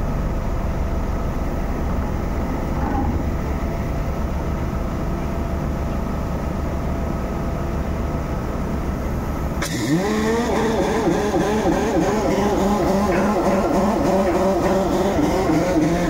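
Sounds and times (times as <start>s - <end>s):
drilling machinery rumbling: 0.0s - 16.0s
warbling tone: 1.4s - 4.4s.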